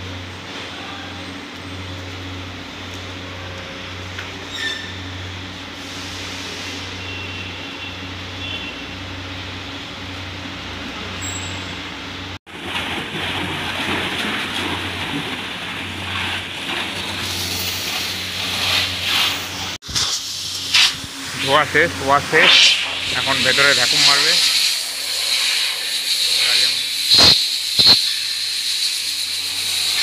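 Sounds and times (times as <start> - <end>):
low machine hum: 0.0 - 26.1
pressure washer spraying car: 12.6 - 30.0.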